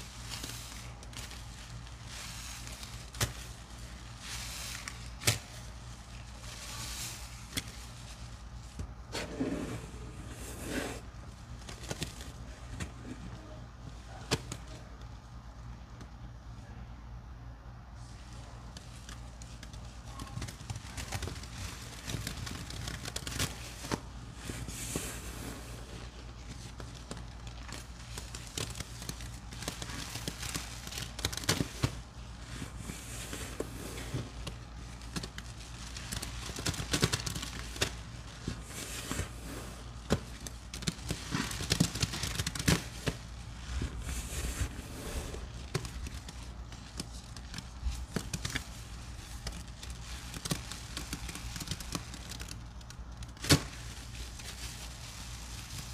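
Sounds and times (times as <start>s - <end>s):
foamy sponges squished: 0.0s - 14.5s, 18.0s - 55.9s
suds crackling and popping: 18.6s - 55.9s.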